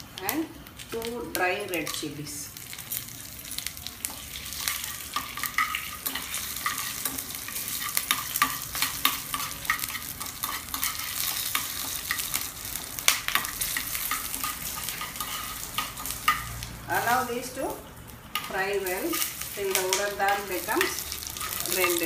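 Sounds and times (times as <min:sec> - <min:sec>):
spices sizzling in hot oil: 0:00.0 - 0:22.0
steel spoon stirring in pan: 0:02.8 - 0:16.6, 0:18.3 - 0:22.0.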